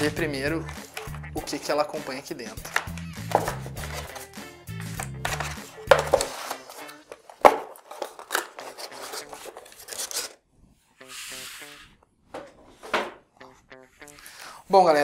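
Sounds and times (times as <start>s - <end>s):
cardboard box rubbing and scraping: 8.6s - 10.3s, 11.0s - 11.9s
paper sliding on table: 11.0s - 12.0s.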